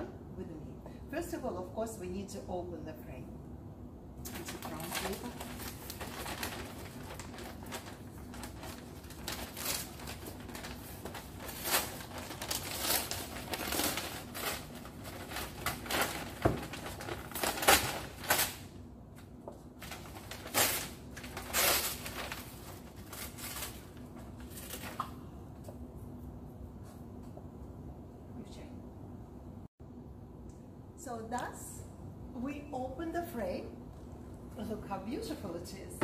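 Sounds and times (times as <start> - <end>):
wrapping paper rustling and tearing: 4.3 - 18.7, 19.7 - 25.0.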